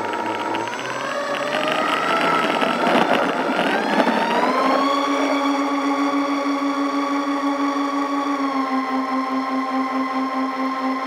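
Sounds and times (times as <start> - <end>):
rushing air noise: 0.0 - 6.9
electric motors whining: 0.0 - 11.0.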